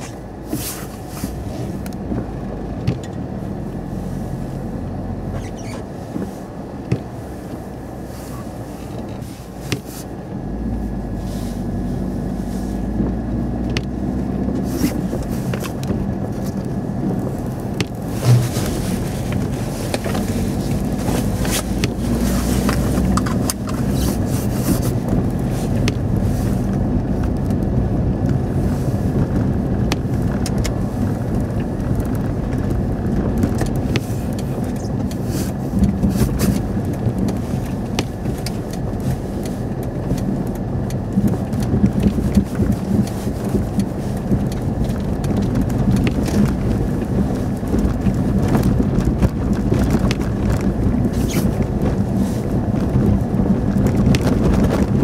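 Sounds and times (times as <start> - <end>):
engine and tyre rumble: 0.0 - 55.0.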